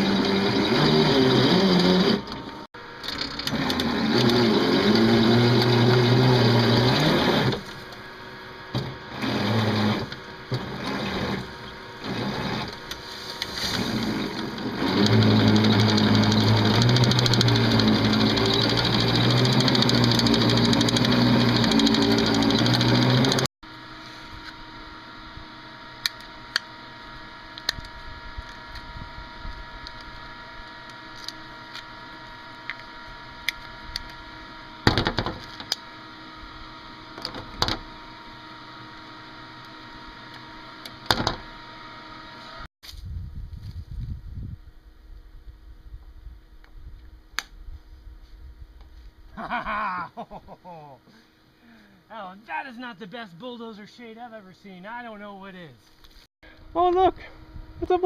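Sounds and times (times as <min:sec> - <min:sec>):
bulldozer engine running: 0:00.0 - 0:08.1, 0:08.9 - 0:23.5.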